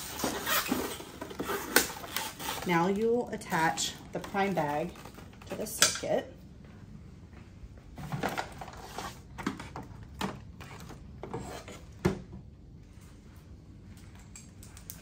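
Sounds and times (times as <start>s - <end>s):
plastic tubing and packaging rustling: 0.0s - 5.9s, 8.0s - 11.8s.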